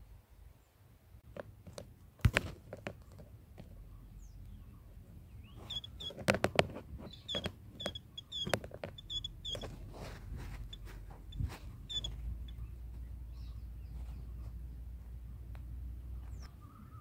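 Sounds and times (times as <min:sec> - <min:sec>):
bird chirping: 0:03.0 - 0:09.9, 0:10.5 - 0:15.0, 0:16.0 - 0:17.0
sharp knocks and thumps: 0:06.0 - 0:12.3.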